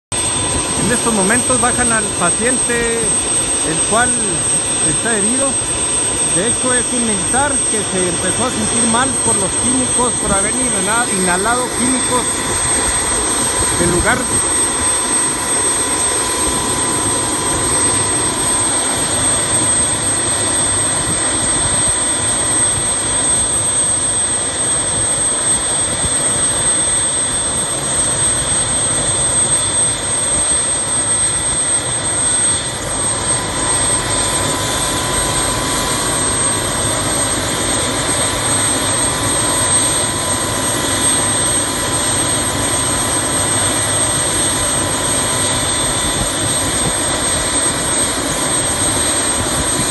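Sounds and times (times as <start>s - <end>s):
helicopter turbine engine whine: 0.1s - 49.9s.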